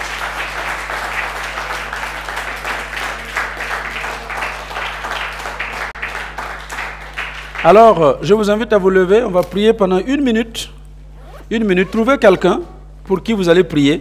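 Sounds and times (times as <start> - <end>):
crowd applauding: 0.0 - 8.1
faint low hum: 0.0 - 14.0.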